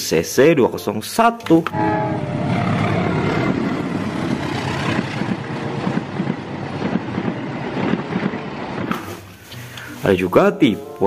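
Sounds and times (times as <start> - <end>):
train rumbling past: 1.7 - 9.4
wheels clattering over rails: 2.8 - 9.2.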